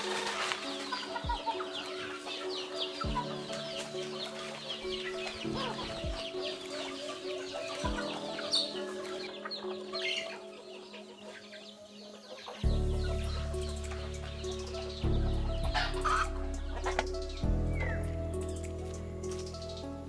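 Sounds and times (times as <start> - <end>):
chickens clucking: 0.0 - 18.0
soft background music: 0.0 - 20.0.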